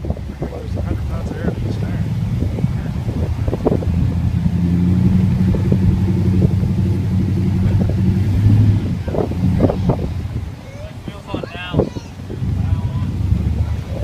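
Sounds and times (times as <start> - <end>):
truck engine running: 0.0 - 14.0.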